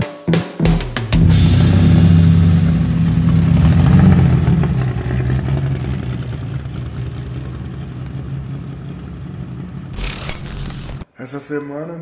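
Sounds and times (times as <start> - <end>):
car engine running: 1.2 - 11.0.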